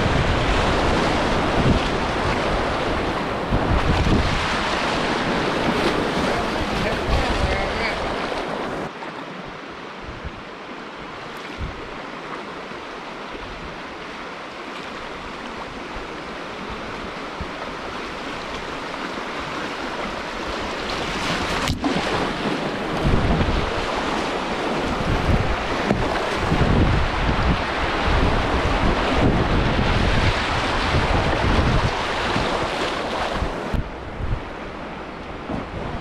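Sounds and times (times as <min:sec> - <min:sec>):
wind buffeting microphone: 0:00.0 - 0:08.9, 0:10.0 - 0:12.1, 0:15.1 - 0:36.0
river rapids rushing: 0:00.0 - 0:36.0.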